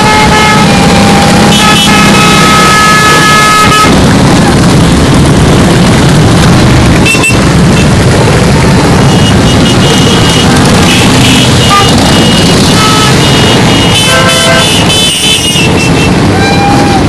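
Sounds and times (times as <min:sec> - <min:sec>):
motorcycle horns tooting: 0:00.0 - 0:04.0, 0:07.0 - 0:07.9, 0:09.0 - 0:17.0
motorcycle engines running: 0:00.0 - 0:17.0.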